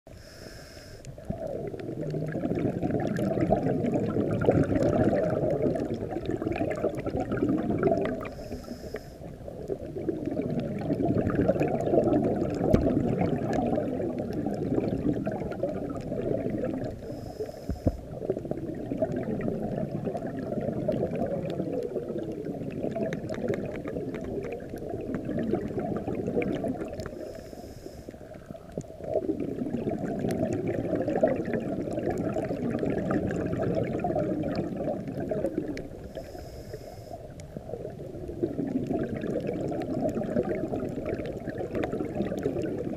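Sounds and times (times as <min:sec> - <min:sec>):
faint high breathing hiss: 0:00.1 - 0:01.3, 0:08.2 - 0:09.5, 0:17.0 - 0:18.3, 0:27.1 - 0:28.5, 0:36.0 - 0:37.3
underwater exhaust bubbles: 0:00.1 - 0:42.9.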